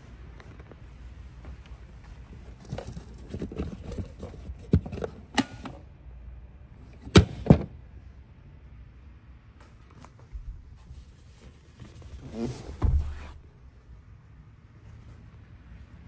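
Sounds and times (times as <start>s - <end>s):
hand rustling on rubber mats: 10.2s - 13.6s.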